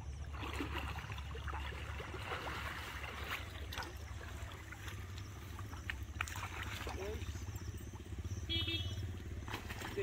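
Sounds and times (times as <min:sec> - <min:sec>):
water sloshing and splashing: 0:00.0 - 0:10.0.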